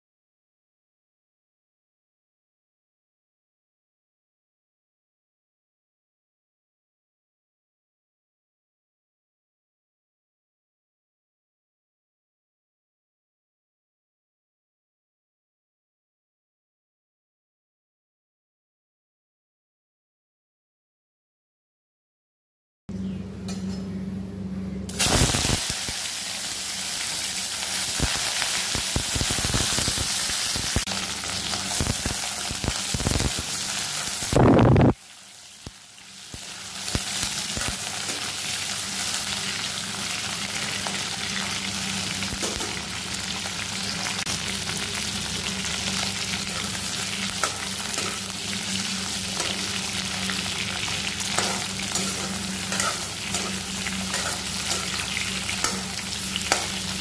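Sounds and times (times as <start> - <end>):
low steady hum: 22.9 - 29.7
meat sizzling in hot oil: 24.9 - 57.0
spatula scraping a pan: 51.2 - 56.8.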